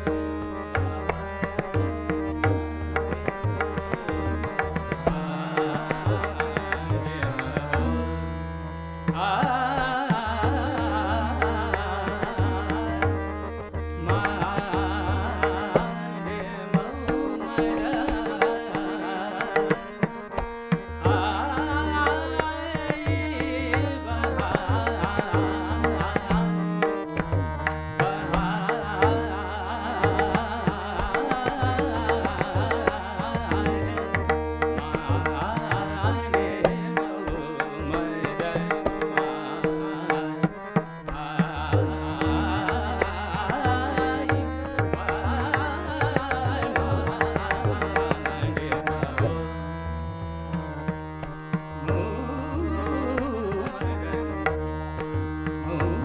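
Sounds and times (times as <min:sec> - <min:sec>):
harmonium: 0:00.0 - 0:56.0
man singing: 0:00.0 - 0:56.0
tabla rhythm: 0:00.0 - 0:56.0
tanpura drone: 0:00.0 - 0:56.0.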